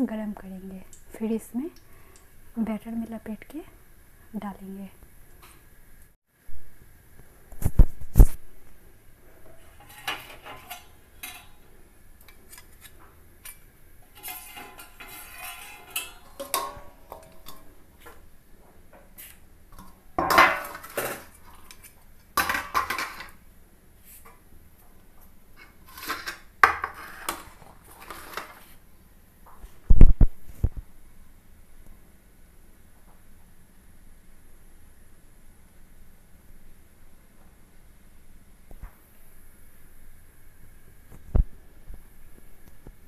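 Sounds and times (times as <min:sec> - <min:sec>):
metal utensils and pots clattering: 0:09.3 - 0:18.3, 0:18.9 - 0:23.4, 0:25.6 - 0:28.7.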